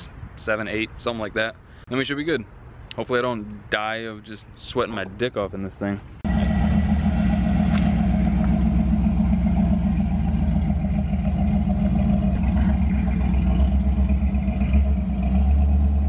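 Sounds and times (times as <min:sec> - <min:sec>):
pickup truck engine running: 0:06.2 - 0:16.0.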